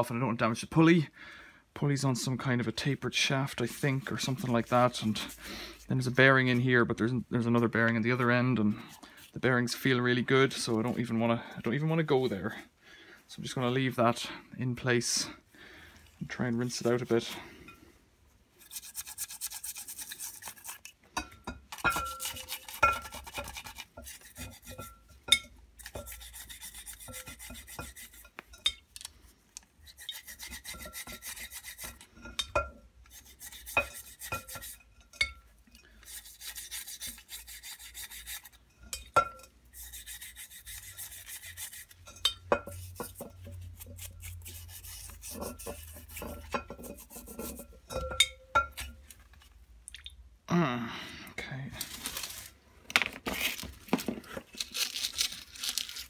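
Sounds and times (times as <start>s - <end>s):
stiff brush scrubbing metal: 2.4s - 6.2s, 18.6s - 21.0s, 21.7s - 25.2s, 25.8s - 28.6s, 29.8s - 32.2s, 33.0s - 34.9s, 36.0s - 39.0s, 39.7s - 48.9s.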